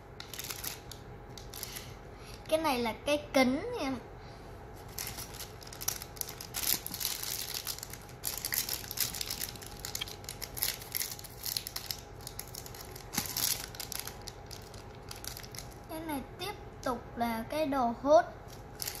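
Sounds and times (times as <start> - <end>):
plastic wrappers crumpling and tearing: 0.2 - 2.0, 4.8 - 15.9, 18.4 - 19.0.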